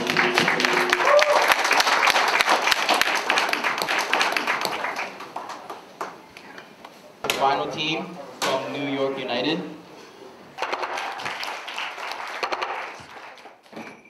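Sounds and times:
audience applauding: 0.0s - 6.2s, 10.6s - 13.7s.

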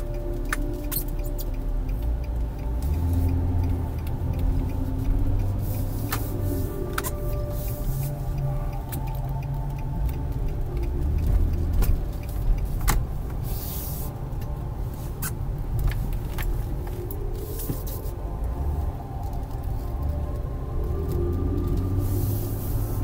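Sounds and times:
engine and road rumble: 0.0s - 23.0s.

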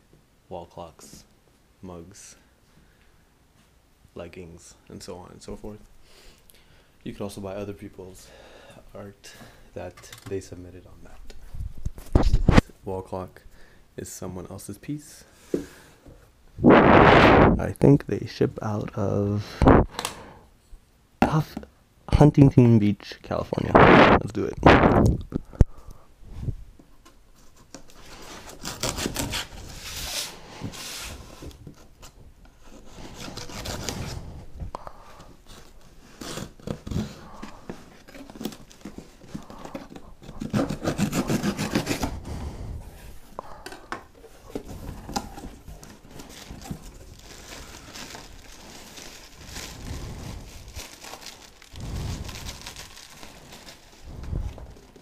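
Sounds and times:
plastic wrap rustling: 27.3s - 34.6s, 35.4s - 42.1s, 44.1s - 55.0s
cardboard rubbing and tearing: 27.7s - 31.4s, 32.7s - 34.4s, 35.5s - 42.3s.

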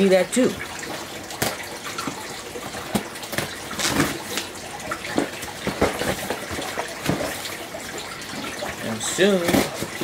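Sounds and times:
cardboard rustling and crinkling: 1.4s - 7.7s, 8.4s - 10.0s.

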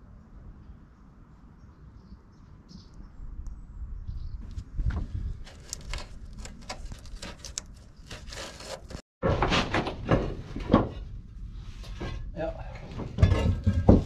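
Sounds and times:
roof tiles and battens clattering: 12.8s - 14.0s.

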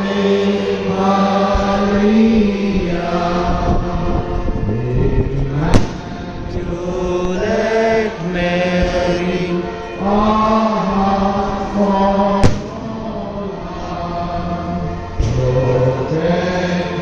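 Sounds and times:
slow hymn singing: 0.0s - 17.0s
sharp bang: 5.6s - 6.4s, 12.4s - 13.2s, 15.2s - 15.8s.

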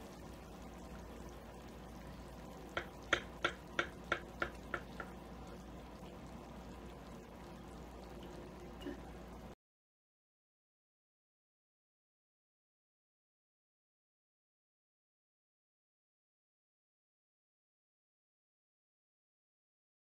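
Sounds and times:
low room hum: 0.0s - 9.6s.

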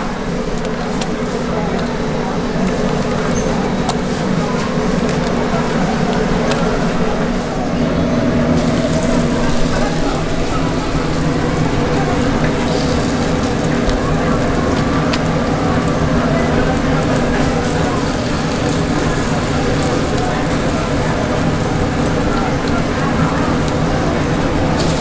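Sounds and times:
batter sizzling in oil: 8.6s - 25.0s.

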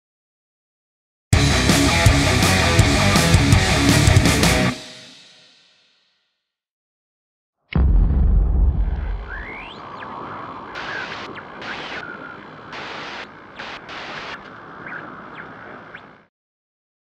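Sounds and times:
crackly glitch static: 8.9s - 16.3s
short rising chirps: 9.2s - 10.1s
noise hiss: 9.8s - 16.2s.

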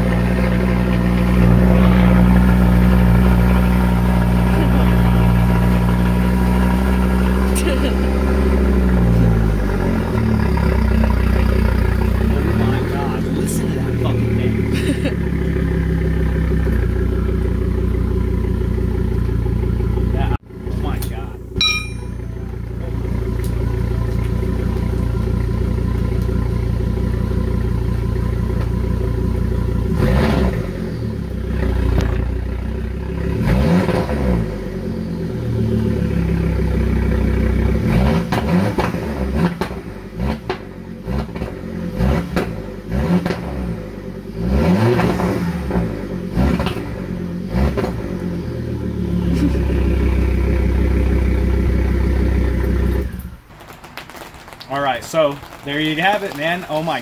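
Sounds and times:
car engine idling and revving: 0.0s - 57.0s
exhaust pops: 37.8s - 43.6s, 49.3s - 57.0s.

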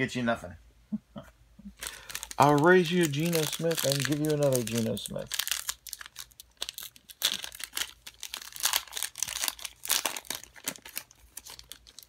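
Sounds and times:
foil wrapper tearing and crinkling: 1.8s - 12.0s.

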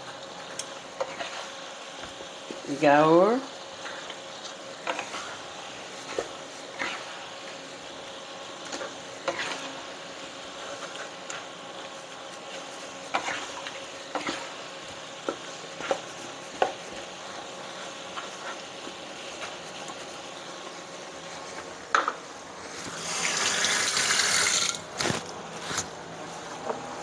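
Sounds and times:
wooden spatula scraping a pan: 1.0s - 3.2s, 3.8s - 7.6s, 8.6s - 14.6s, 15.2s - 21.7s
curry simmering: 3.4s - 24.9s.

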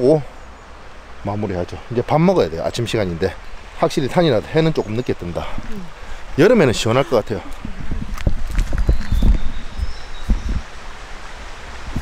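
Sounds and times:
microphone handling noise: 6.9s - 10.7s.

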